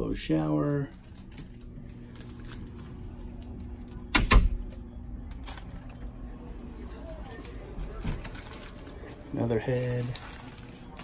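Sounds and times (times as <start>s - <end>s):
steady low hum: 0.0s - 11.0s
cabin door banging: 4.1s - 4.6s.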